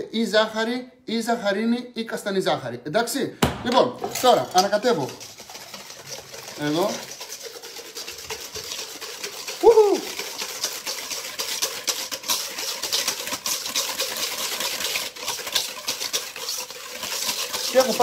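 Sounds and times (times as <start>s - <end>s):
whisk beating in metal bowl: 3.7s - 18.0s.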